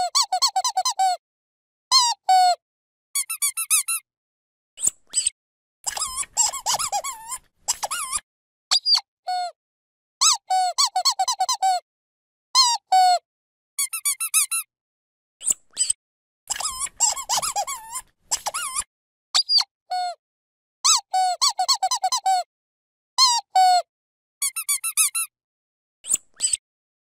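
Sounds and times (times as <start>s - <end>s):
squeaky dog toy squeaking: 0.0s - 1.2s, 1.9s - 2.6s, 3.2s - 4.0s, 5.9s - 9.5s, 10.2s - 11.8s, 12.6s - 13.2s, 13.8s - 14.7s, 15.7s - 20.2s, 20.8s - 22.5s, 23.2s - 23.8s, 24.4s - 25.3s, 26.1s - 26.6s.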